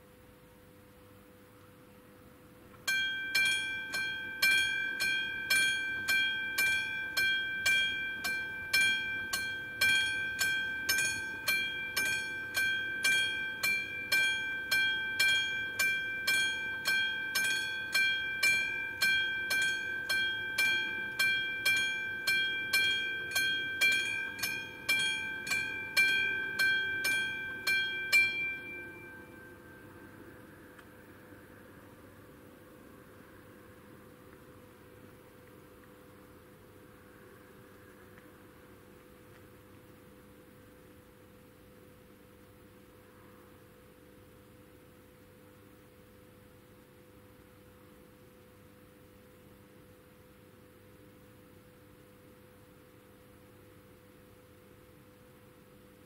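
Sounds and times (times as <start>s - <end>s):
level crossing warning bell: 2.8s - 30.6s.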